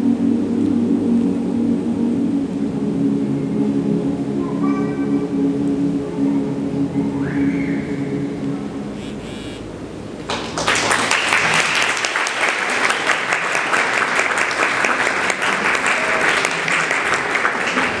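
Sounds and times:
audience applause: 10.2s - 18.0s.

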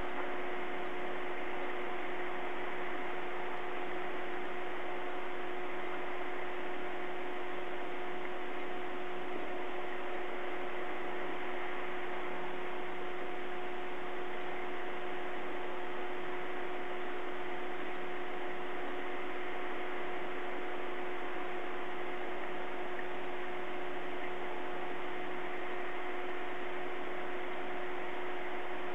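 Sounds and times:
constant multi-pitch hum: 0.0s - 28.9s.

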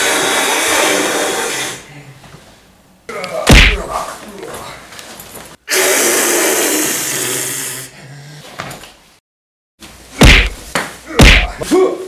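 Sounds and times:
heavy thuds of kicks: 3.5s - 3.9s, 10.2s - 11.6s.

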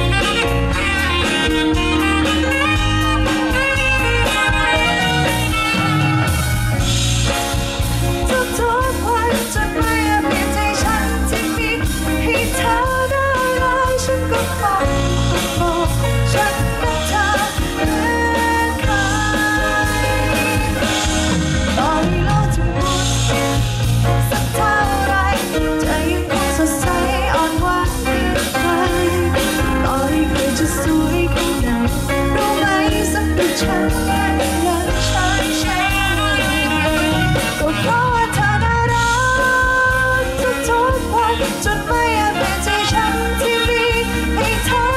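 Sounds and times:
bass: 0.0s - 44.9s
live pop-rock band: 0.0s - 44.9s
person singing: 8.2s - 21.1s, 24.3s - 44.9s.

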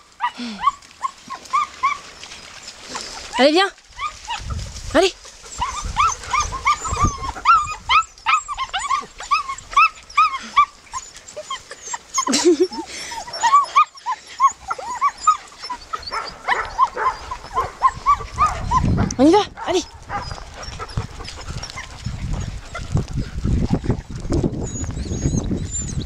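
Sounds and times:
puppy whimpering: 5.5s - 23.0s, 24.5s - 26.0s
puppy lower call: 5.6s - 22.1s.

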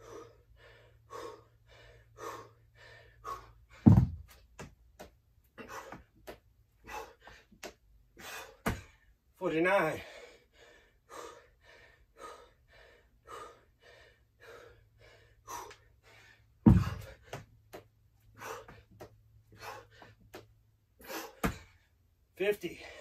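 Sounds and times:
man panting hard: 0.0s - 4.3s, 5.5s - 9.2s, 9.8s - 21.9s, 22.7s - 23.0s
dumbbells thudding onto floor: 3.8s - 4.3s, 16.6s - 17.2s.

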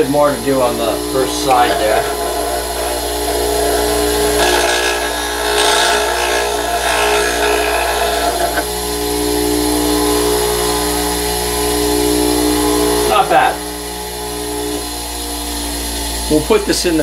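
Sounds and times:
metal scraping against grinding wheel: 0.0s - 11.4s
bench grinder running: 0.0s - 17.0s.

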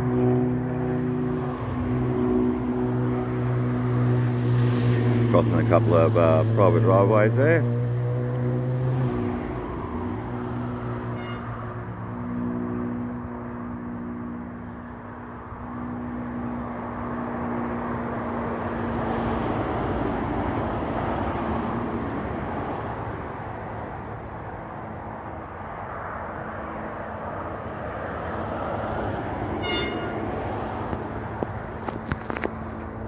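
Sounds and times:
distant railcar rumbling: 28.9s - 33.0s.

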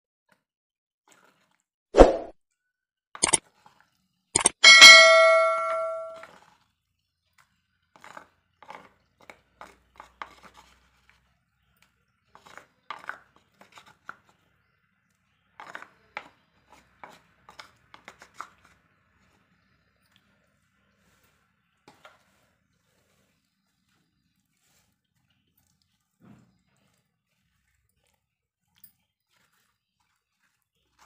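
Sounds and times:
ringing metal clang: 4.6s - 6.2s.

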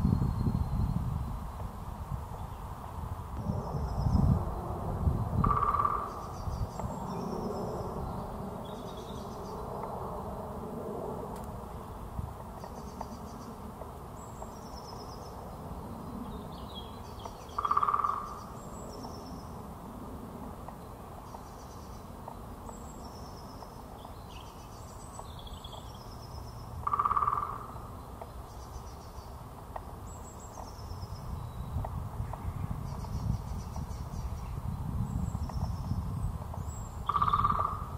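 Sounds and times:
woodpecker drumming on wood: 5.4s - 6.3s, 17.2s - 18.4s, 26.8s - 28.3s, 36.5s - 37.9s.

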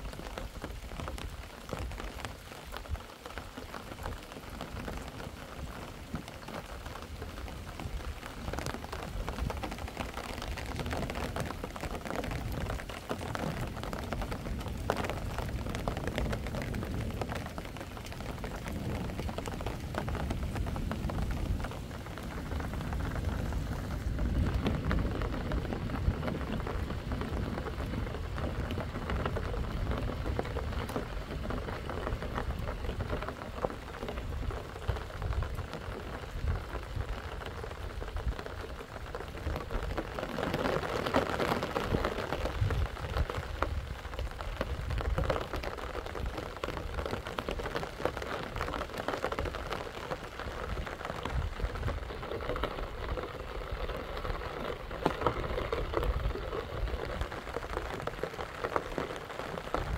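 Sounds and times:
rain on rocky ground: 0.0s - 59.9s.

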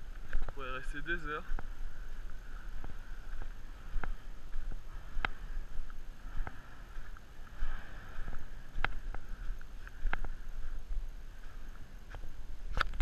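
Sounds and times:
volcano venting rumble and hiss: 0.0s - 13.0s
wind buffeting microphone: 0.0s - 13.0s.

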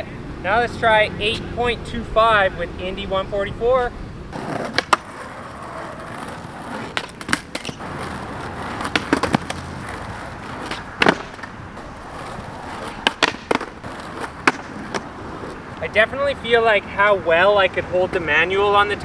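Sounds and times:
skateboard rolling on concrete: 0.0s - 19.0s
skateboard clacks: 4.3s - 15.6s.

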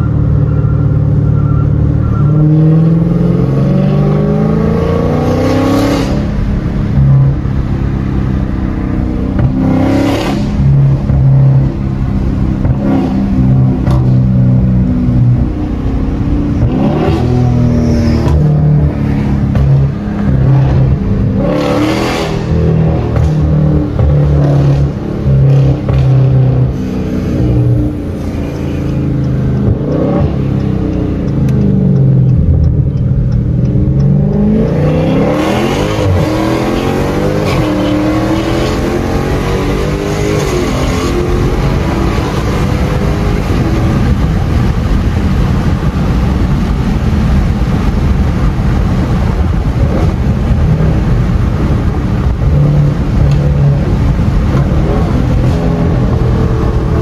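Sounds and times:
car engine accelerating: 0.0s - 57.0s
road noise: 0.0s - 57.0s.

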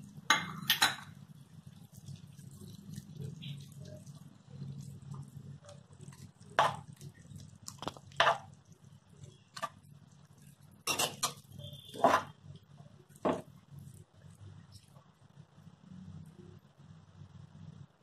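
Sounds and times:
low steady hum: 0.0s - 18.0s
metal spatula scraping a pan: 10.8s - 12.4s.

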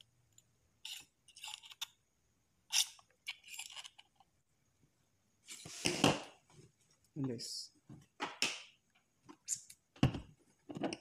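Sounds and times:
small metal scrapes and ticks: 0.8s - 2.0s, 2.7s - 4.3s.

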